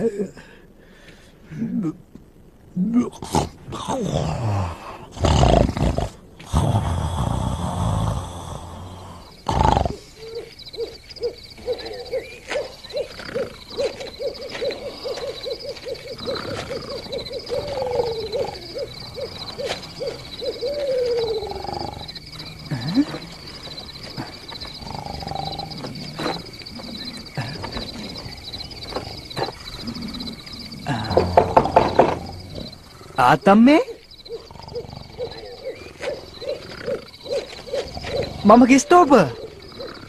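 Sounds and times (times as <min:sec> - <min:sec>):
crickets chirring: 0:01.5 - 0:40.0
animal snoring loudly: 0:03.2 - 0:10.2, 0:21.3 - 0:28.4, 0:34.3 - 0:35.6, 0:37.8 - 0:38.8
owl hooting: 0:09.6 - 0:40.0.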